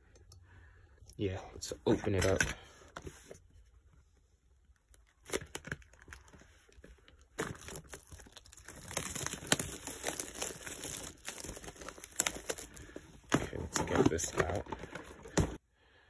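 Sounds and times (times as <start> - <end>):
shrink wrap crinkling and tearing: 4.7 - 15.6.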